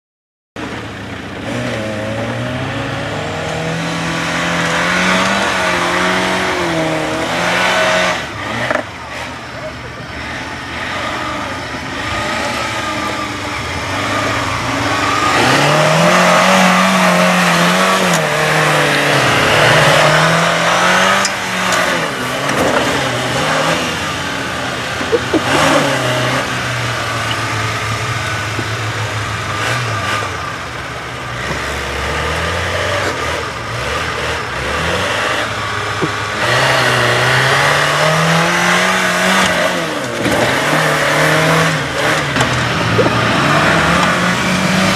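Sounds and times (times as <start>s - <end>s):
engine revving: 0.6s - 44.9s.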